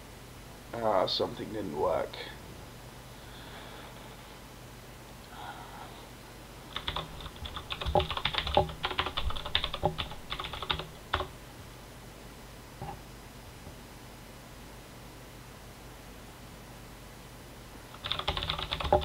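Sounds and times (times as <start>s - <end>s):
computer keyboard typing: 6.7s - 11.3s, 17.9s - 19.0s.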